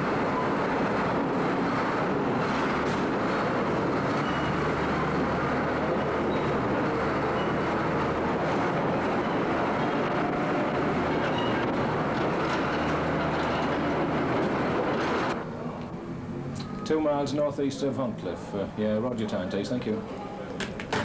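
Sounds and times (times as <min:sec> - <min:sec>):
crawler tracks clanking: 0:00.0 - 0:15.4
tracked tractor engine running: 0:00.0 - 0:15.4.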